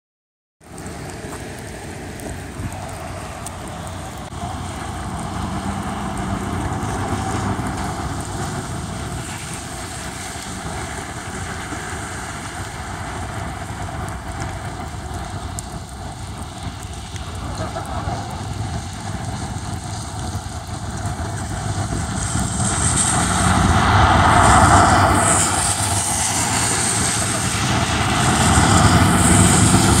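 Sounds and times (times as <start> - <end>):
cars passing: 0.6 - 14.6, 21.9 - 30.0
traffic rumble on wet road: 0.6 - 30.0.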